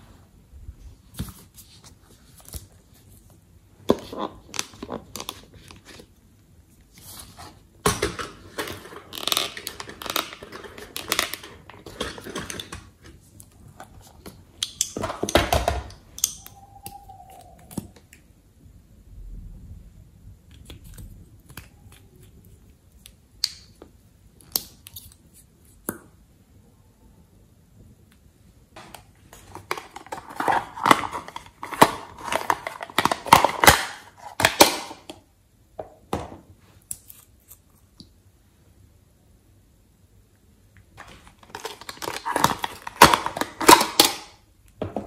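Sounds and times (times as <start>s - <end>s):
plastic tubes scraping and rustling: 7.0s - 15.4s, 29.3s - 34.6s, 41.0s - 44.3s.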